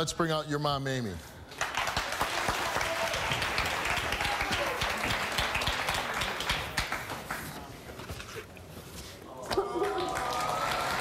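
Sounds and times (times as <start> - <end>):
audience applauding: 1.5 - 7.8, 9.7 - 11.0.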